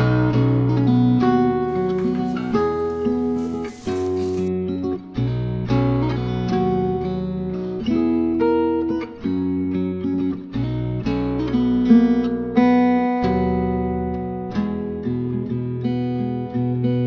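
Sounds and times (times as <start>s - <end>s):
acoustic guitar strumming chords: 0.0s - 8.8s.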